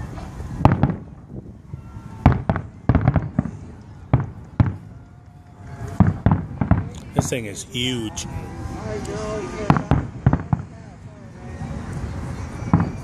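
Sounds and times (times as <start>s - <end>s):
fireworks bursting with bangs: 0.0s - 5.0s, 5.6s - 8.1s, 9.5s - 11.0s, 11.6s - 13.0s.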